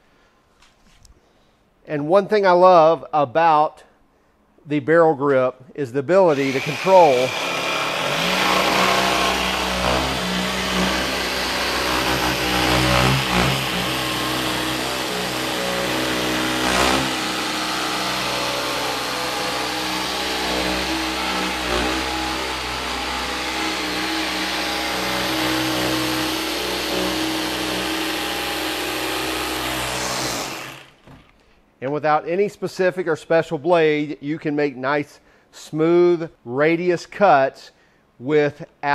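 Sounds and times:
jigsaw cutting plywood: 6.3 - 31.2.

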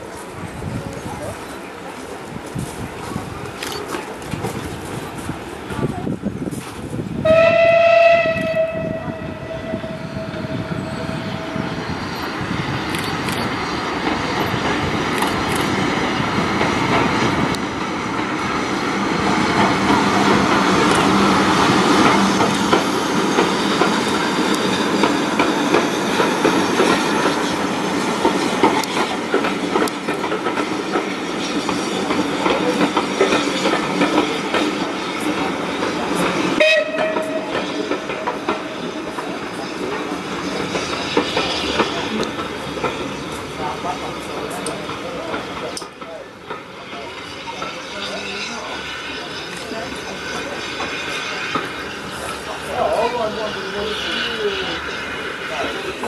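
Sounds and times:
steam locomotive exhaust beats: 4.2 - 56.0
steam whistle: 7.2 - 11.7, 36.6 - 37.7.

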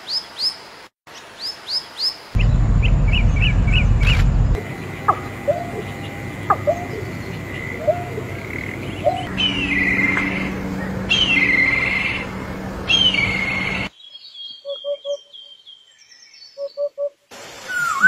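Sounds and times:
kite trilled whinnying whistles: 17.6 - 18.0.

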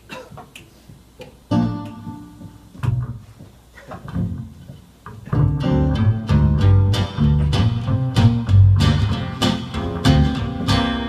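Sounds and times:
acoustic guitar chords: 1.5 - 2.7, 5.3 - 11.0.

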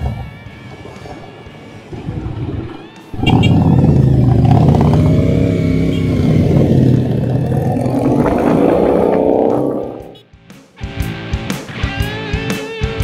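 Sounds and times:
motorcycle engine accelerating: 1.9 - 10.2.

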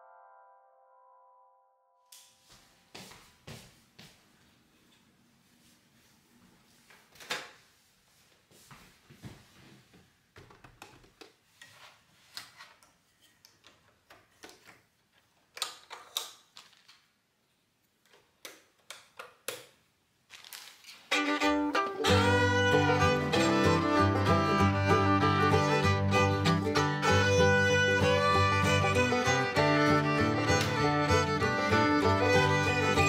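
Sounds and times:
fiddle and guitar music: 21.1 - 33.0.

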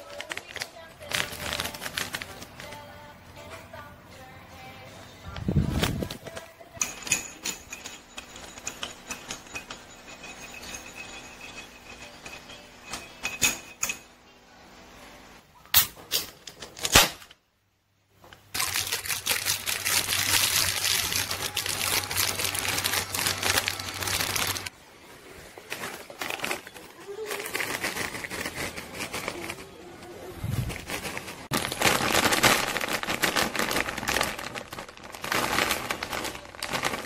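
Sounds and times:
candy wrapper crinkling: 0.0 - 2.9, 18.5 - 24.7, 25.6 - 37.0
plastic snack bag crinkling: 0.0 - 2.9, 18.5 - 24.7, 25.5 - 37.0.

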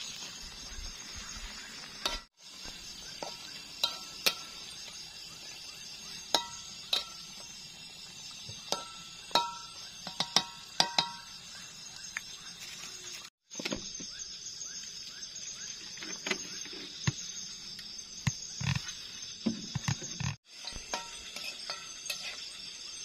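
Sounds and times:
night insects trilling: 0.0 - 23.0
utensil clinking against dish: 8.7 - 11.3, 20.6 - 22.6
stirring in a wok: 20.5 - 22.8.

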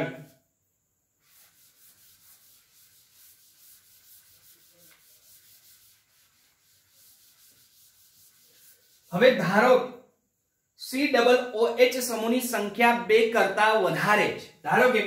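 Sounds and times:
duster wiping chalkboard: 1.2 - 9.6.

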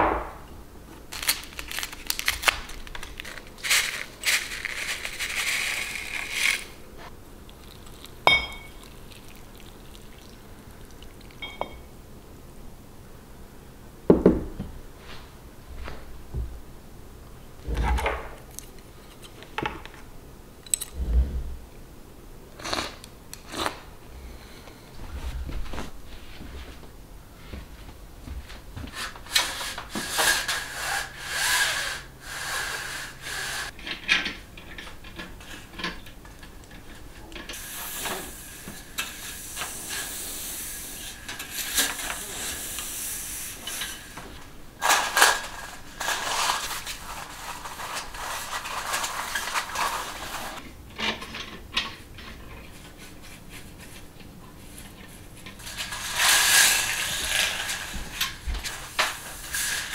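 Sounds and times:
duster brushing blind slats: 1.7 - 7.1, 28.8 - 33.8, 36.8 - 51.2, 51.9 - 59.9.

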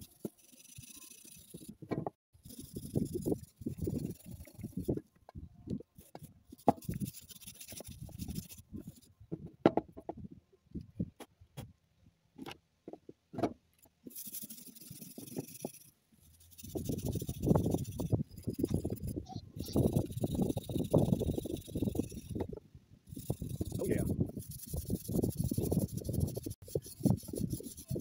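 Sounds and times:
wire brush scrubbing wood: 0.0 - 1.8, 2.4 - 5.0, 6.0 - 9.1, 14.1 - 22.5, 23.1 - 28.0.

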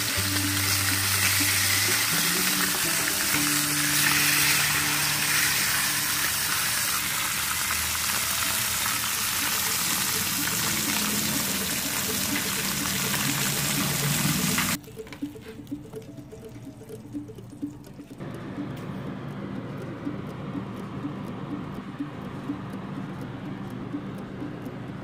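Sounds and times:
fish sizzling in a frying pan: 0.0 - 14.8.

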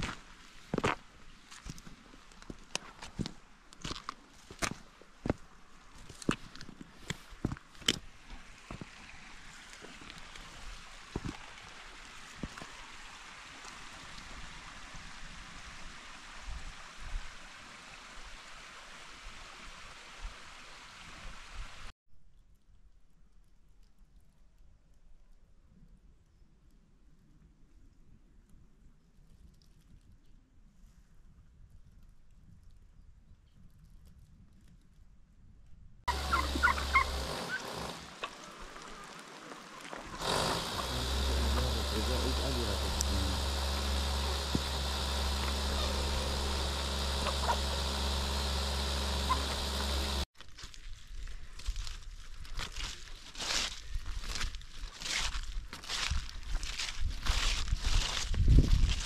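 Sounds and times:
chickens clucking: 36.1 - 38.4, 44.2 - 48.3, 49.2 - 50.2
stream rushing: 36.1 - 50.3
low outdoor rumble: 40.1 - 50.2
wind bumps on microphone: 57.0 - 59.0.

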